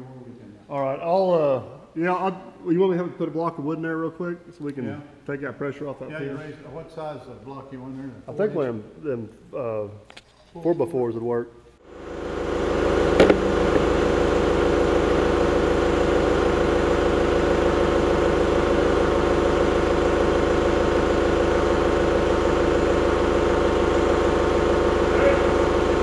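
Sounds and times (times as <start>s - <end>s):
diesel engine idling: 11.9s - 26.0s.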